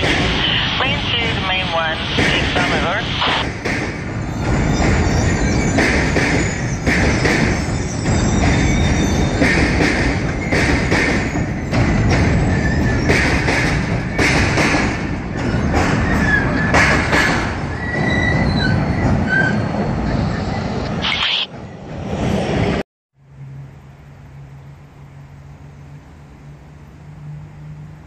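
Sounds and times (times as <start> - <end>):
train wheels rumbling on rail: 0.0 - 21.0
high wheel squeals: 4.2 - 9.6, 17.7 - 21.5.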